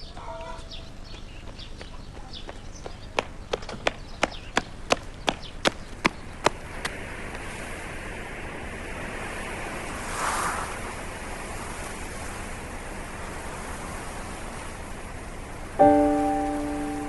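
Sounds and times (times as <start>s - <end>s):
steady rushing noise: 6.3s - 17.0s.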